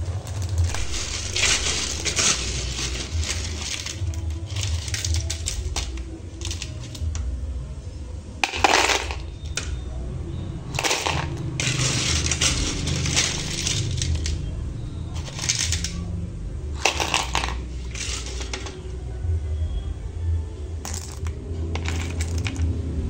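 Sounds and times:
snail shells clattering: 0:00.0 - 0:07.3, 0:08.4 - 0:09.8, 0:10.7 - 0:14.5, 0:15.1 - 0:16.0, 0:16.8 - 0:18.9, 0:20.9 - 0:22.8.

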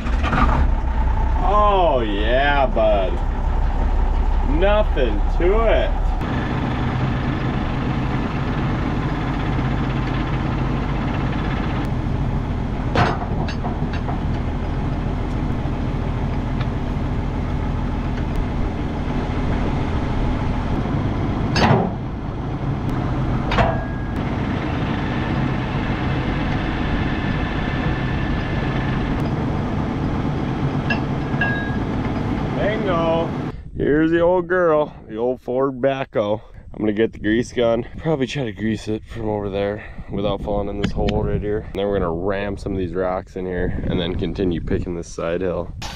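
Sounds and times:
tractor engine idling: 0:00.0 - 0:33.5
sharp metal clanks: 0:12.9 - 0:14.4, 0:21.5 - 0:22.0, 0:23.5 - 0:24.2, 0:30.8 - 0:32.3.

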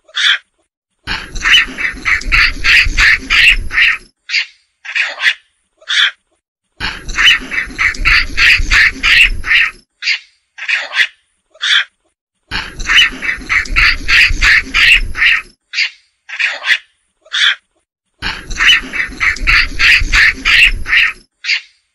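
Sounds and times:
monkey chattering calls: 0:01.1 - 0:06.2, 0:06.8 - 0:11.9, 0:12.5 - 0:17.6, 0:18.2 - 0:21.7.

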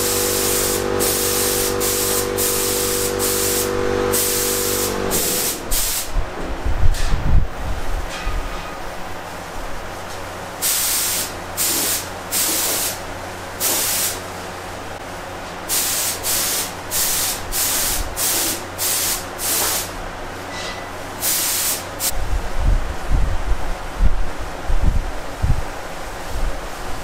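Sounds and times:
paint spray gun hissing: 0:00.0 - 0:06.2, 0:10.6 - 0:13.0, 0:13.6 - 0:14.3, 0:15.7 - 0:20.0, 0:21.2 - 0:22.2
steady low hum: 0:00.0 - 0:08.1.

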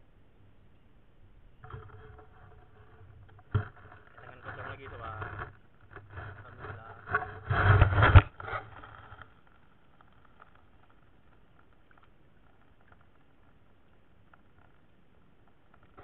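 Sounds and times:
underwater camera scraping and knocking: 0:01.6 - 0:13.6.

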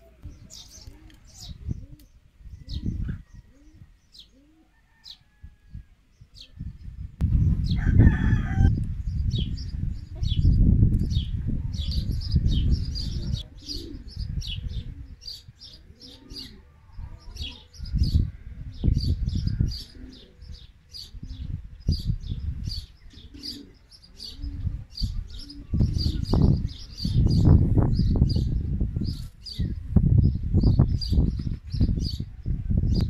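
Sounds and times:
dove cooing: 0:00.0 - 0:05.0, 0:11.2 - 0:27.8
birds chirping: 0:00.0 - 0:05.4, 0:06.1 - 0:33.0.

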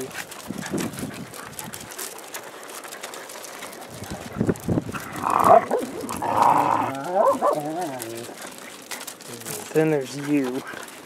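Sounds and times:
puppies yapping: 0:04.9 - 0:11.0
puppy whining: 0:05.0 - 0:09.0.

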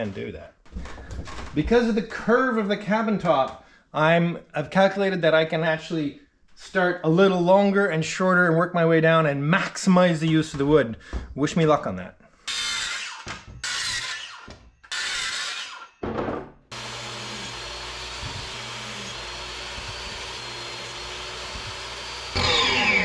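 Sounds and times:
circular saw crosscutting: 0:12.4 - 0:16.0, 0:16.7 - 0:23.0
table saw ripping wood: 0:12.5 - 0:16.0, 0:16.7 - 0:23.0
motor whine winding down: 0:16.7 - 0:23.0.

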